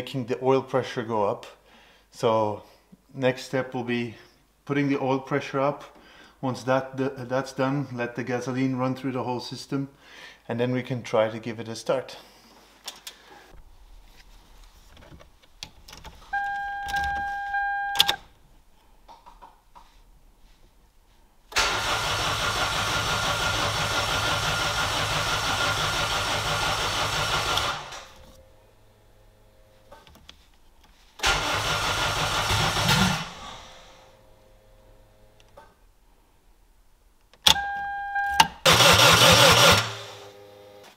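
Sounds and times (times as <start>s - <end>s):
short steady beep: 16.4s - 18.2s, 37.6s - 38.5s
starter cranking engine: 21.6s - 28.1s, 31.2s - 33.4s, 38.6s - 40.2s.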